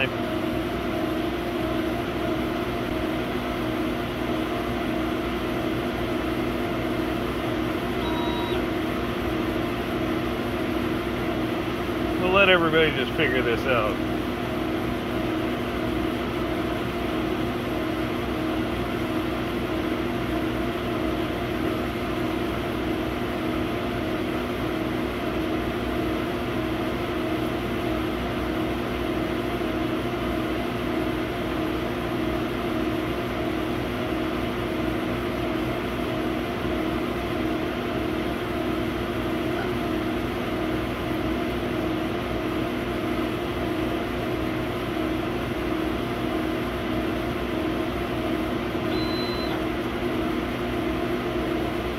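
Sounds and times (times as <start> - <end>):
laser cutter machine hum: 0.0 - 51.9.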